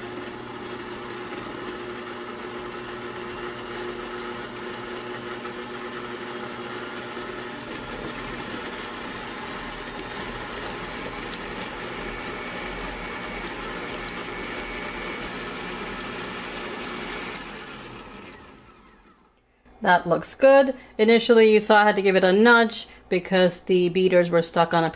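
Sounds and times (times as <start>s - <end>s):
stand mixer running: 0.0s - 19.3s.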